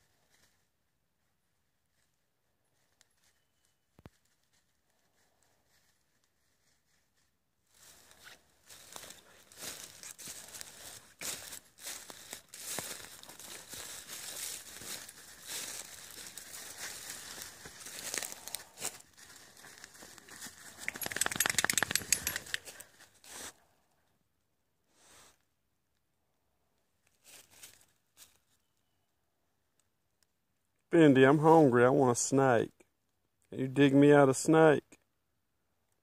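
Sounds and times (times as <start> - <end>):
dry leaves rustling and crunching: 5.7 - 23.5, 27.2 - 28.4
dog digging in leaves: 9.4 - 22.4.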